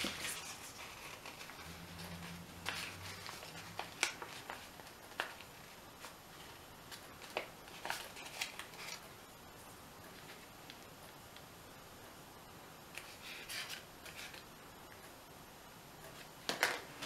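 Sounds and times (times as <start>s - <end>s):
stiff paper crackling and rustling: 0.0s - 9.0s.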